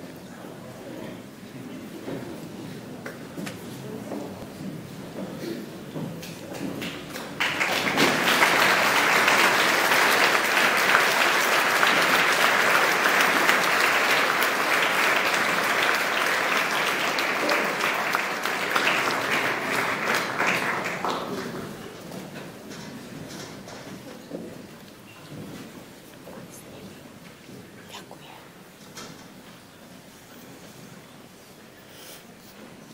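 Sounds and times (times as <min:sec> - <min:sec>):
audience applause: 0:06.5 - 0:22.3.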